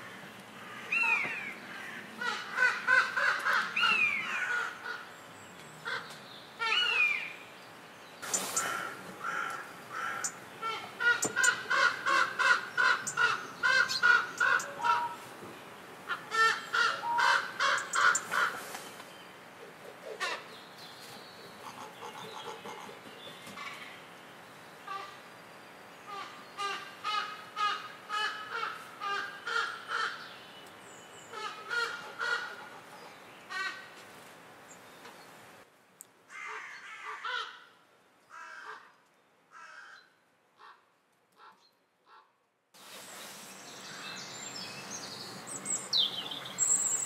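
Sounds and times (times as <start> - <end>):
raven drawn-out falling calls: 0.0 - 5.1, 8.2 - 15.2, 16.0 - 18.7, 26.1 - 30.2, 31.3 - 33.9, 36.3 - 42.3.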